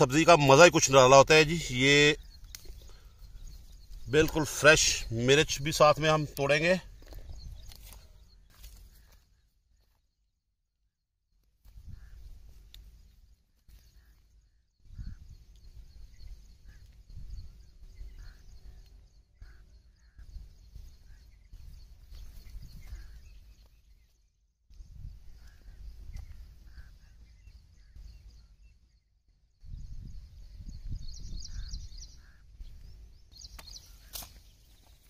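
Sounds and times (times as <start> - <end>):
faint bird chirps: 0.0 - 10.4, 11.7 - 35.0
wind buffeting microphone: 1.7 - 8.4, 14.8 - 23.6, 24.8 - 28.5, 29.5 - 34.1.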